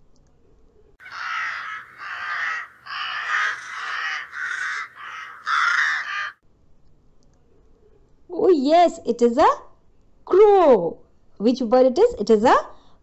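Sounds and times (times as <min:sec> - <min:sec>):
crow cawing: 0:01.0 - 0:06.4.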